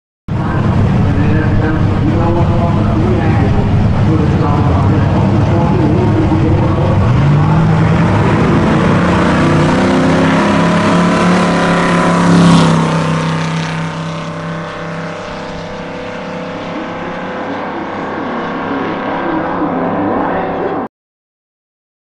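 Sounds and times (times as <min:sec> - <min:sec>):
pickup truck engine at full throttle: 0:00.3 - 0:20.7.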